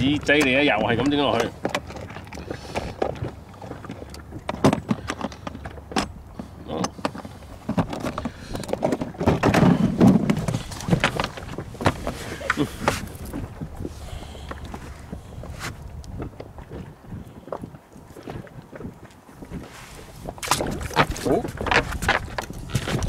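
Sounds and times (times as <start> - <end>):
low rumbling: 0.0 - 17.4
knocks and rattles on boat: 0.0 - 23.0.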